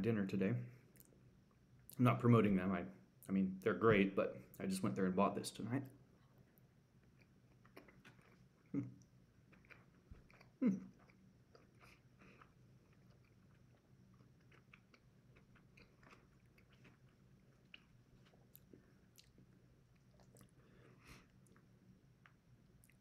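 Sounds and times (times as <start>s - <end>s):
chewing food: 6.1s - 23.0s
throat sound: 8.7s - 9.0s.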